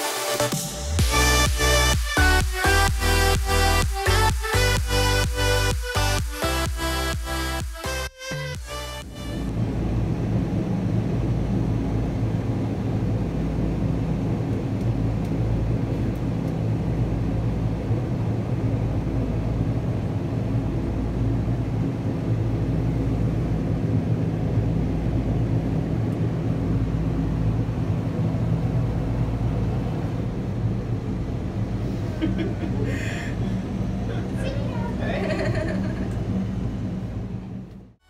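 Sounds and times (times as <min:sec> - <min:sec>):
machinery droning: 0:00.0 - 0:38.0.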